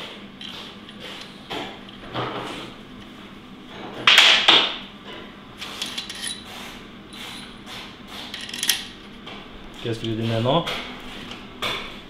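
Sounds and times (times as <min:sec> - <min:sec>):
metal tools rattling clatter: 0:05.8 - 0:06.5, 0:08.3 - 0:09.0.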